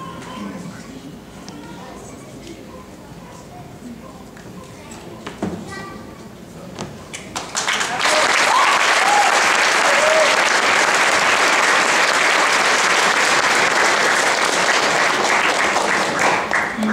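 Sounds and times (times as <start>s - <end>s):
audience applauding: 7.3s - 16.9s.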